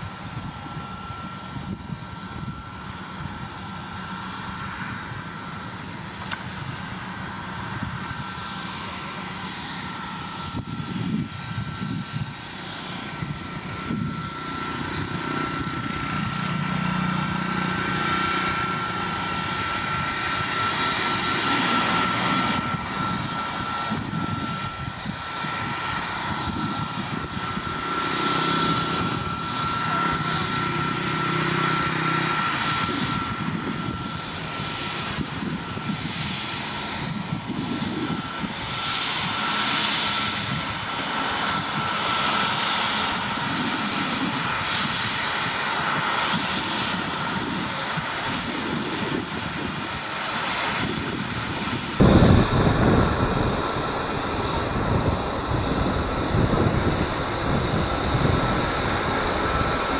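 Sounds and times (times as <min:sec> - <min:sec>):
jet engines whining: 0:00.0 - 0:59.9.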